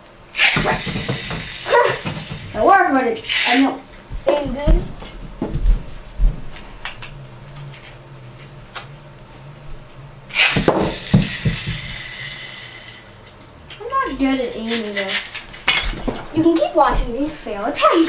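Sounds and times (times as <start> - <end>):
spinning toy whine: 0.0 - 18.0
ripcord launcher zip: 0.4 - 2.6, 3.2 - 3.8, 10.2 - 13.0
toy wheel knocking on plastic: 0.6 - 2.6, 10.6 - 12.1
dull thumps on carpet: 4.1 - 6.6.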